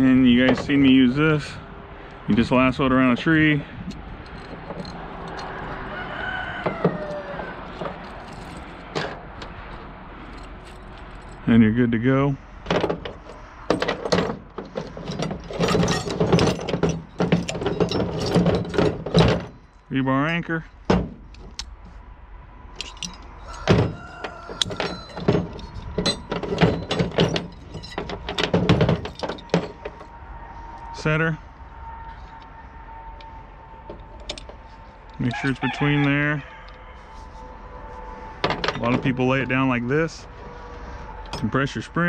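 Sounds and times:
metal trap and chain rattling: 0:02.4 - 0:05.9, 0:06.6 - 0:11.9, 0:12.5 - 0:19.9, 0:22.7 - 0:30.2, 0:33.1 - 0:36.0, 0:38.4 - 0:39.4
distant rooster crowing: 0:05.5 - 0:08.0, 0:23.3 - 0:25.6, 0:31.7 - 0:33.9, 0:34.6 - 0:38.4.

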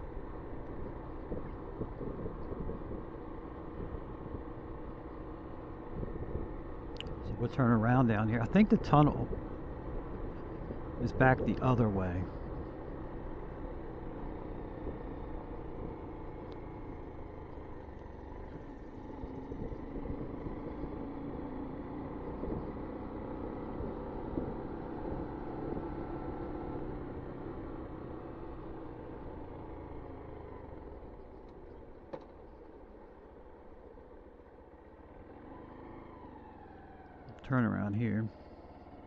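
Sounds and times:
wind noise rumble: 0:00.0 - 0:12.8, 0:19.4 - 0:20.6
motorcycle engine running: 0:00.0 - 0:37.6.

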